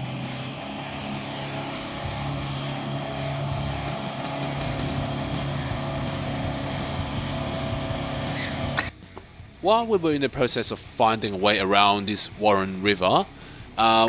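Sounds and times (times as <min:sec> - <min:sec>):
car engine running under load: 0:00.0 - 0:08.9.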